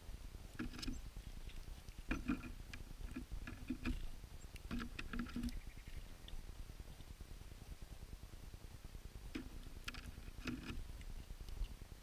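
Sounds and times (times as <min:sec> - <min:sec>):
birds pecking at feeder: 0:00.4 - 0:07.8, 0:09.2 - 0:12.0.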